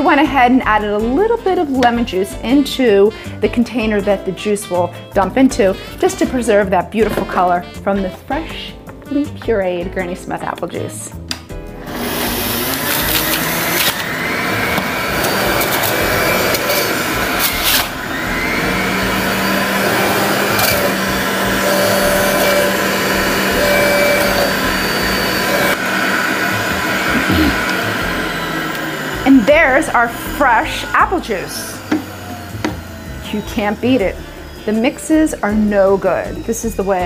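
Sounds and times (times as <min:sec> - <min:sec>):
juicer motor whirring: 0:11.8 - 0:37.0.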